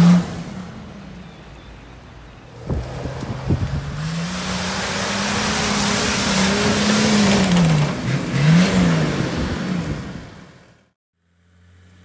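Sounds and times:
car engine revving under load: 0:02.4 - 0:10.6.

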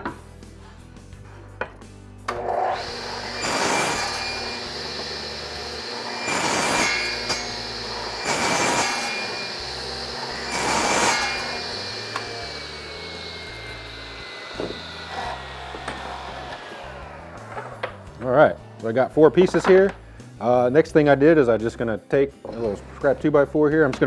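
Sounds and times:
saw motor whine: 0:02.3 - 0:18.2
saw cutting wood: 0:02.3 - 0:19.9.

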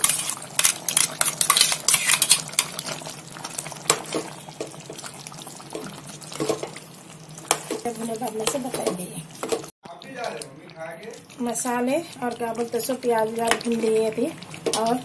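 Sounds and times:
spoon scraping metal pot: 0:00.0 - 0:03.0.

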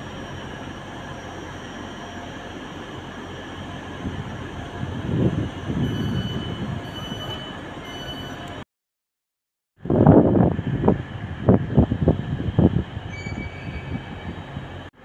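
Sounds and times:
train rumble: 0:00.0 - 0:08.6, 0:09.8 - 0:15.0
high-pitched wheel squeal: 0:05.4 - 0:08.6, 0:13.1 - 0:14.4.

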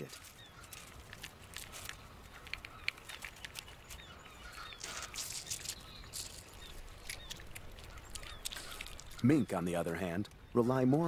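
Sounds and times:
clicks and taps on rocks: 0:00.0 - 0:10.4
faint bird chirps: 0:00.0 - 0:11.0.

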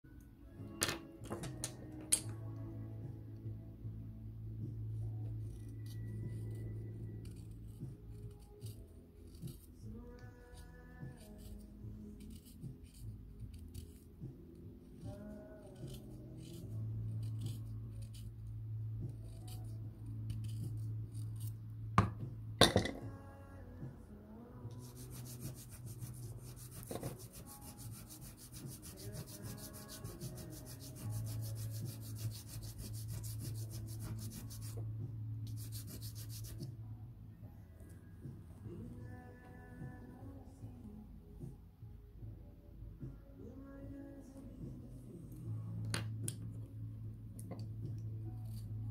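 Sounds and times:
soft background music: 0:00.0 - 0:48.9
knife scraping pencil: 0:05.4 - 0:09.7, 0:10.5 - 0:14.1, 0:15.6 - 0:18.5, 0:19.1 - 0:21.6, 0:24.8 - 0:34.8, 0:35.5 - 0:36.6
pencil rubbed on sandpaper: 0:12.2 - 0:14.0, 0:24.8 - 0:34.8, 0:35.5 - 0:36.6.

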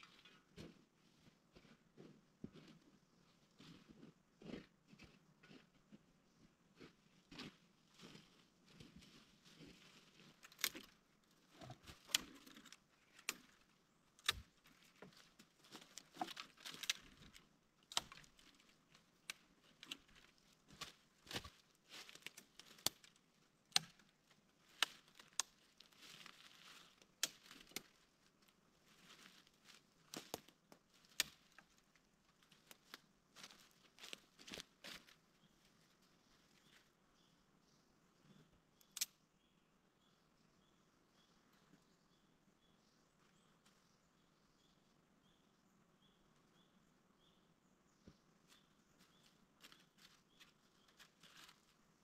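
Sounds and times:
soft crackling rustle: 0:06.8 - 0:37.0, 0:48.4 - 0:52.0
faint sharp clicks and snaps: 0:38.8 - 0:39.2.

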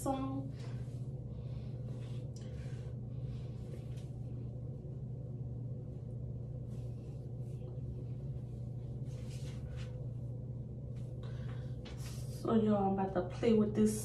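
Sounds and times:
steady low hum: 0:00.0 - 0:14.0
hands rustling through hair: 0:06.6 - 0:10.2.

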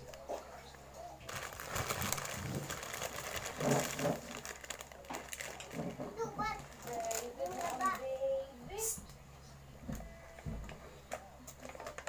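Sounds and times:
plastic packets crinkling: 0:01.2 - 0:08.3.

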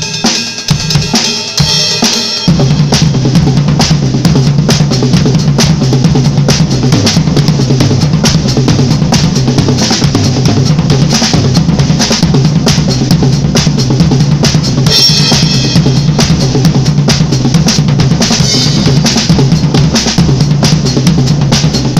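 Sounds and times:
bass drum: 0:00.0 - 0:21.9
drum kit paradiddles on snare and toms: 0:00.0 - 0:21.9.

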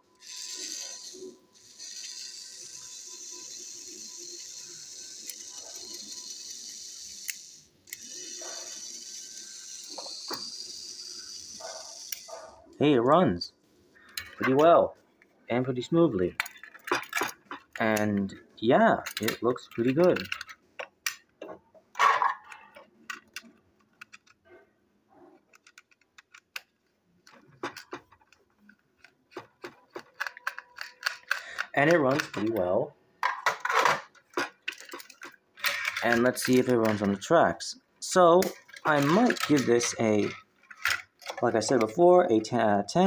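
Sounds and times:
toy train motor whirring: 0:00.0 - 0:12.6, 0:19.0 - 0:21.2, 0:25.5 - 0:32.6, 0:33.4 - 0:42.1
plastic toy train clicks and taps: 0:25.5 - 0:32.6.

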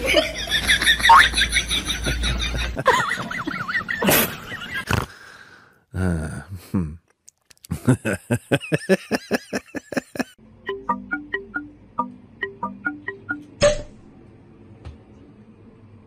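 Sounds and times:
light plucked music: 0:10.6 - 0:13.8.

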